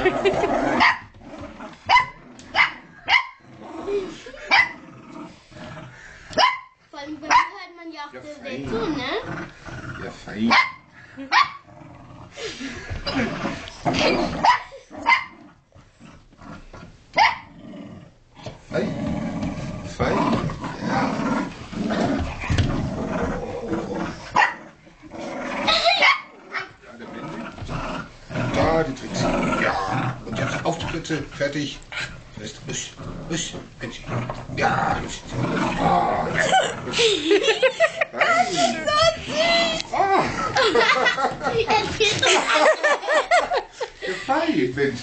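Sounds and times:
dogs growling in play: 0.0s - 6.4s, 8.3s - 44.1s
dog barks: 1.9s - 3.4s, 6.4s - 6.7s, 7.3s - 7.6s, 10.5s - 11.6s, 17.2s - 17.5s, 24.4s - 24.6s, 25.8s - 26.7s.

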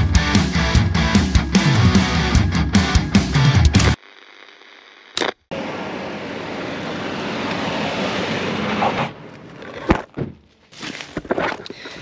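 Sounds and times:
static crackle: 3.8s - 5.5s
loud steady static hiss: 3.8s - 6.1s.

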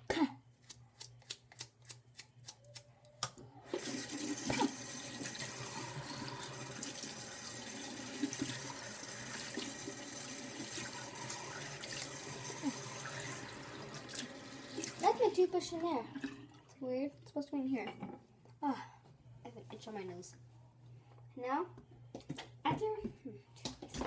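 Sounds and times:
sink tap running: 3.7s - 16.6s.

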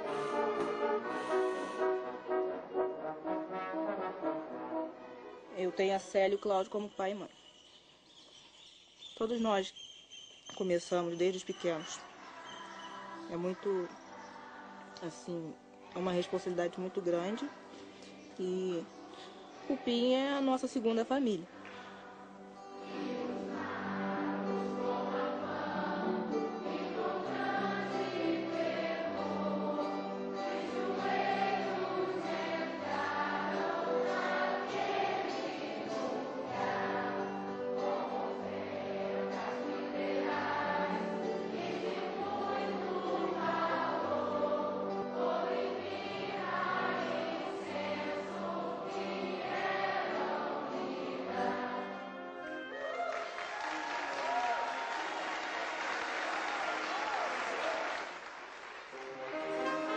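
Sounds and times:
string instruments: 0.0s - 6.1s, 21.2s - 53.5s, 58.9s - 59.9s
youth choir singing: 11.8s - 15.0s, 18.4s - 20.2s, 21.5s - 52.3s.

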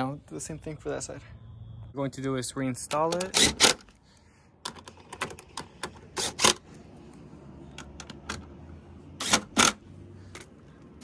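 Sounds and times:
impact driver driving screws: 3.2s - 3.9s, 9.2s - 9.8s.

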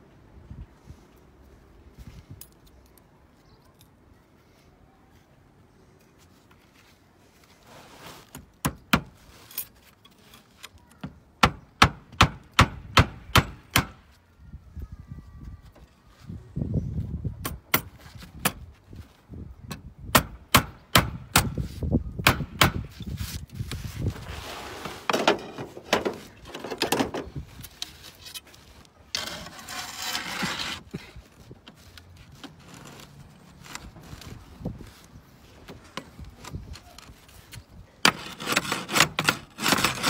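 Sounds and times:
slate scraping against slate: 27.6s - 31.1s, 38.0s - 40.0s.

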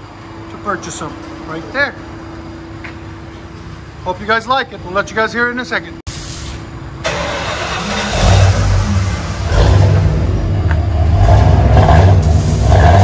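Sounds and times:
vee eight engine revving: 7.0s - 13.0s.

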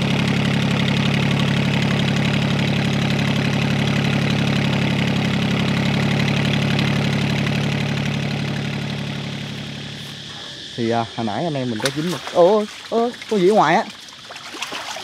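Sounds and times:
boat engine running: 0.0s - 15.0s.

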